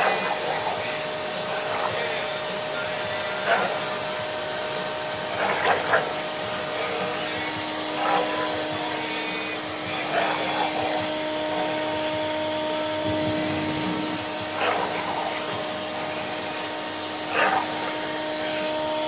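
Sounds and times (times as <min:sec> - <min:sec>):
dogs growling: 0:00.0 - 0:18.8
whooshing hiss: 0:11.8 - 0:17.3.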